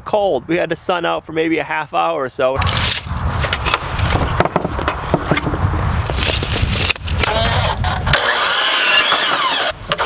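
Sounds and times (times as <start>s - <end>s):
saw motor whining: 7.2s - 10.0s.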